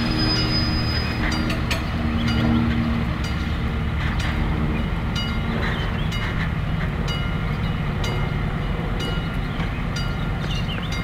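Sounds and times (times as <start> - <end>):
level crossing warning bell: 10.0 - 11.0.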